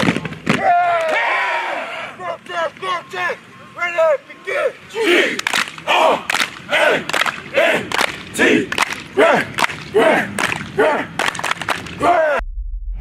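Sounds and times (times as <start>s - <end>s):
short shouted calls: 0.6s - 12.4s
sharp hand claps: 5.4s - 12.0s.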